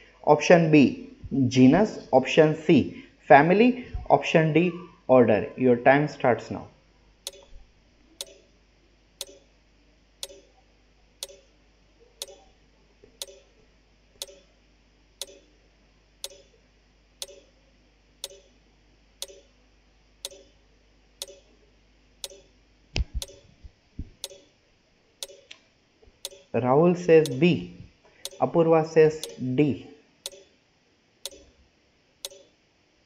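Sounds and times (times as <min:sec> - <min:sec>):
timer ticking: 0:07.3 - 0:07.5, 0:08.2 - 0:08.5, 0:09.2 - 0:09.4, 0:10.2 - 0:10.5, 0:11.2 - 0:11.5, 0:12.2 - 0:12.5, 0:13.2 - 0:13.5, 0:14.2 - 0:14.5, 0:15.2 - 0:15.4, 0:16.2 - 0:16.5, 0:17.2 - 0:17.5, 0:18.2 - 0:18.5, 0:19.2 - 0:19.5, 0:20.2 - 0:20.5, 0:21.2 - 0:21.5, 0:22.2 - 0:22.5, 0:23.2 - 0:23.4, 0:24.2 - 0:24.5, 0:25.2 - 0:25.6, 0:26.2 - 0:26.6, 0:27.2 - 0:27.4, 0:28.2 - 0:28.5, 0:29.2 - 0:29.4, 0:30.2 - 0:30.5, 0:31.2 - 0:31.5, 0:32.2 - 0:32.5.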